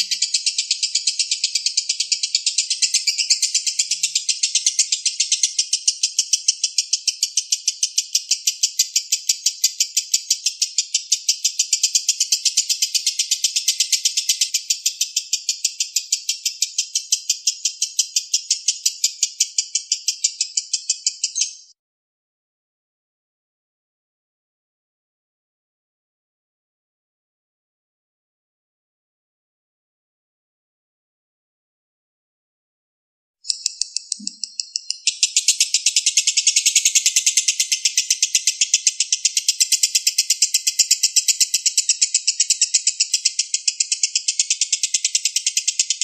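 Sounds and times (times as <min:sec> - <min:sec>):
lovebird chattering: 0:00.0 - 0:21.7, 0:33.5 - 0:46.0.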